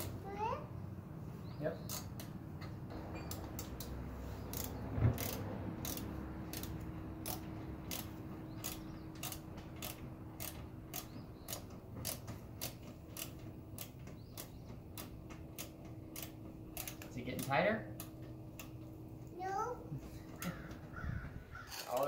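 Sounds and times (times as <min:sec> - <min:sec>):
ratchet clicking: 0:00.0 - 0:00.2, 0:01.8 - 0:19.0.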